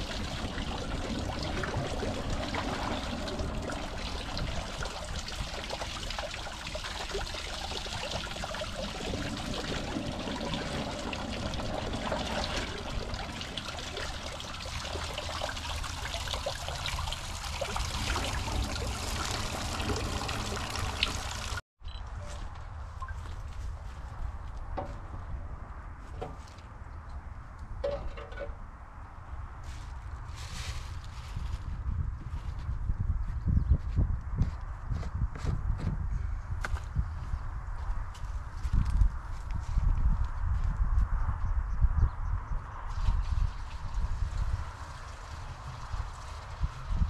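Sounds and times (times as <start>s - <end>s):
water pouring and splashing: 0.0s - 21.6s, 42.9s - 47.0s.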